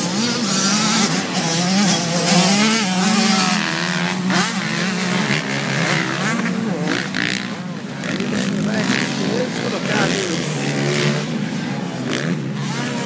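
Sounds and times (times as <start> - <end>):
motocross engines revving: 0.0 - 13.0.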